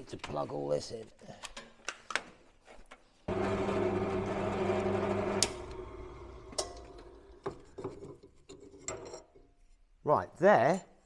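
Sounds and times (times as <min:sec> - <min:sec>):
drill motor humming: 0:03.3 - 0:06.6.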